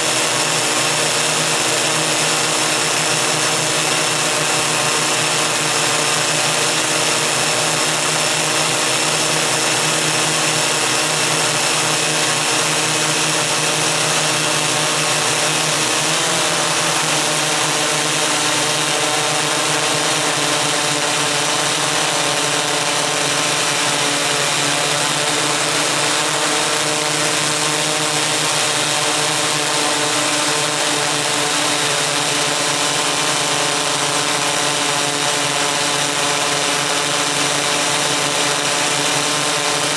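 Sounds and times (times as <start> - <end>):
multicopter motors and propellers humming: 0.0 - 39.9.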